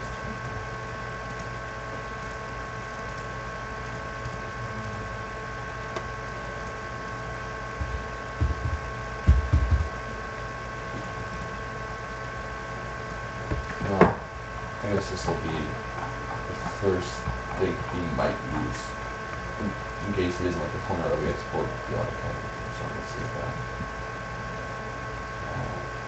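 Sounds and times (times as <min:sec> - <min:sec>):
steady hum and hiss: 0:00.0 - 0:26.0
low thumps: 0:07.8 - 0:10.0, 0:15.0 - 0:18.8.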